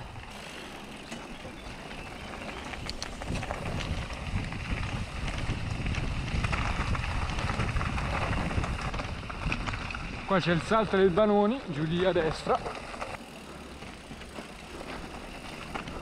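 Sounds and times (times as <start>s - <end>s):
bike rattling: 0.0s - 16.0s
tyres crunching over stones: 0.6s - 16.0s
wind buffeting microphone: 1.1s - 13.4s.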